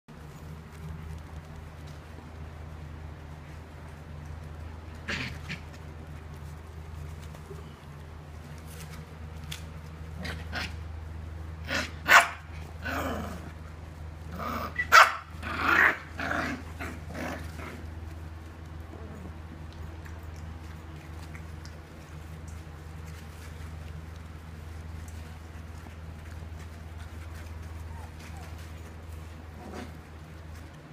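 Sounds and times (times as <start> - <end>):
puppies growling: 0.2 - 30.9
puppies barking: 11.7 - 13.2, 14.4 - 18.0.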